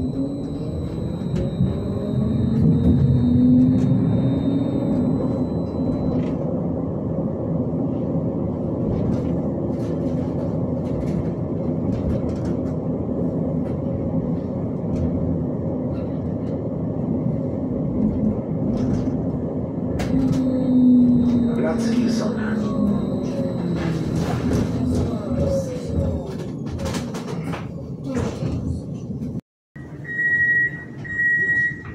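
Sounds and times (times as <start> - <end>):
high whine: 0.0 - 10.0, 16.9 - 25.8
low traction hum: 0.0 - 26.7
tram wheels rumbling on rails: 0.0 - 30.0.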